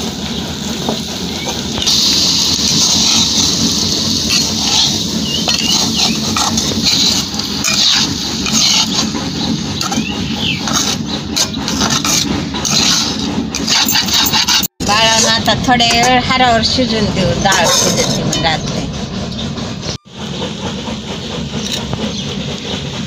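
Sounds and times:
hot oil sizzling: 0.0s - 14.6s
spatula scraping a pan: 1.8s - 18.9s.

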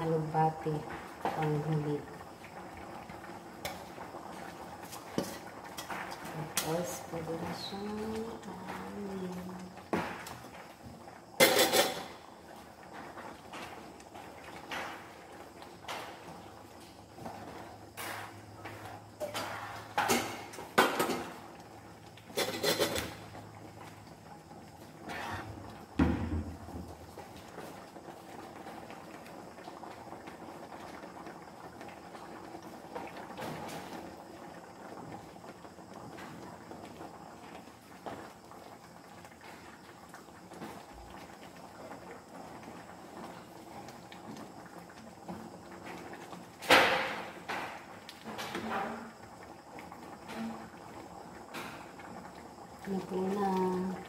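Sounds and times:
spatula scraping a frying pan: 22.3s - 23.1s, 25.1s - 25.6s.

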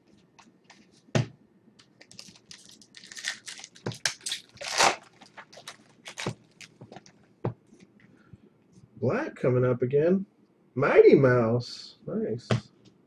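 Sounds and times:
wrapper crinkling and tearing: 1.8s - 6.8s.

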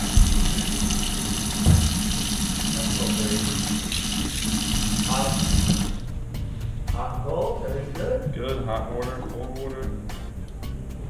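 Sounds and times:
water running into steel sink: 0.0s - 6.0s
low knock: 1.6s - 2.2s.

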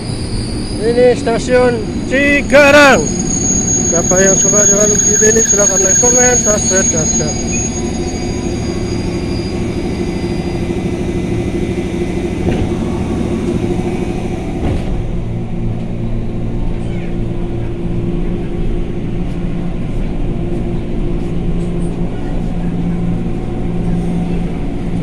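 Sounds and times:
electric train humming: 0.0s - 25.0s
high whine: 0.0s - 25.0s.

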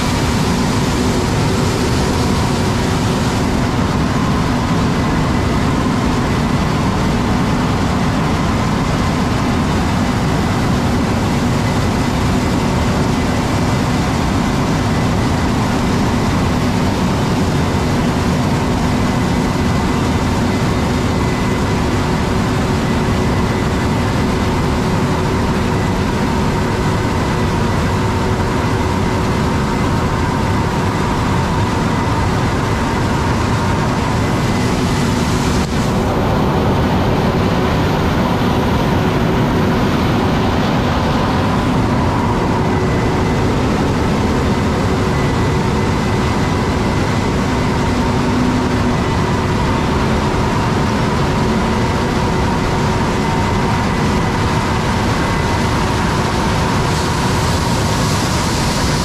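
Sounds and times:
combine harvester engine and threshing drone: 0.0s - 59.0s
steady hums and whines: 0.0s - 59.0s.

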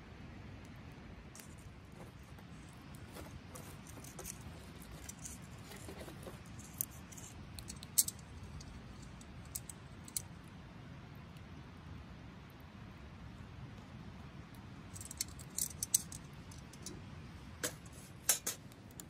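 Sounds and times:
wood fire crackling: 0.6s - 10.5s, 14.4s - 19.0s
logs shifted with tongs: 15.0s - 16.9s.

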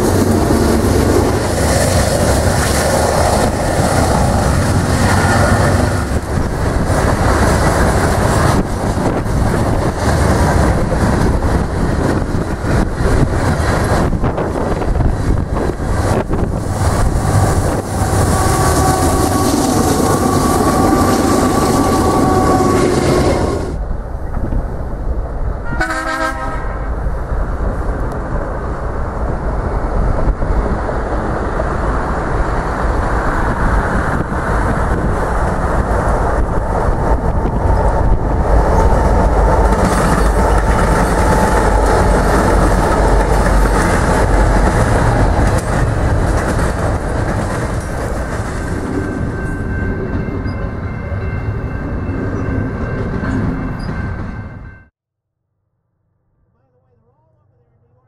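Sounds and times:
freight train rumbling: 0.0s - 54.9s
train horn: 18.0s - 23.8s, 25.6s - 26.9s.

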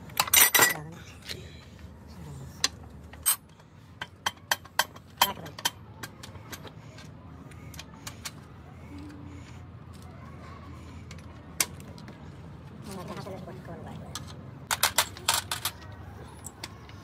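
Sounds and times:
metal parts and tools clinking: 0.0s - 1.4s, 2.6s - 7.1s, 14.1s - 17.0s.

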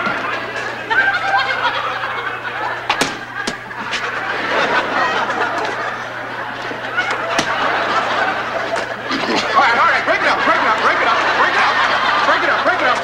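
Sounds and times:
studio audience laughing: 0.0s - 13.0s
boxing gloves smacking: 3.0s - 3.6s.

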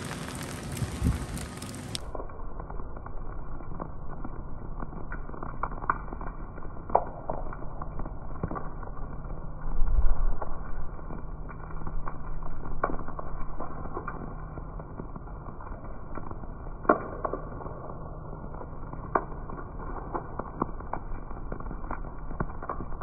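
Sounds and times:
low rumble: 0.0s - 5.6s
steady rain on paving: 0.0s - 23.0s.

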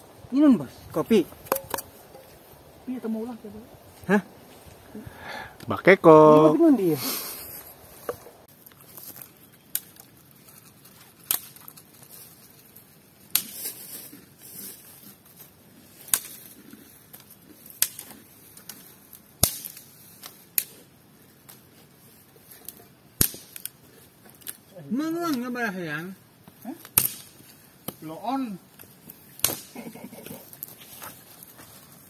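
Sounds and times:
sharp strikes on wood: 1.4s - 2.4s.

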